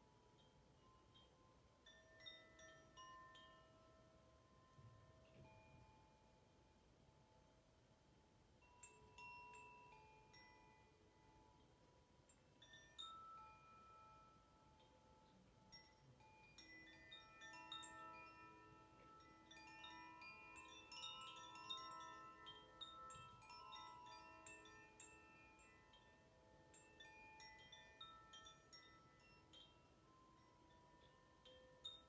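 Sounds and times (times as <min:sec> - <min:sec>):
wooden wind chime ringing: 0:00.0 - 0:06.8, 0:08.6 - 0:32.0.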